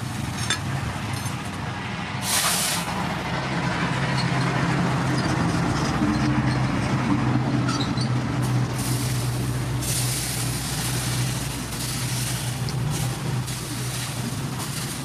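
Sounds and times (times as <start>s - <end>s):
water sizzling on hot metal: 2.2s - 2.9s, 8.7s - 15.0s.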